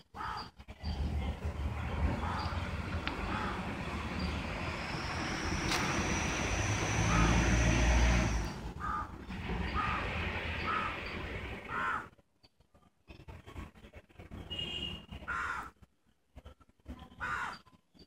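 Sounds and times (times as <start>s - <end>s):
passing vehicle rumble: 0.6s - 12.1s.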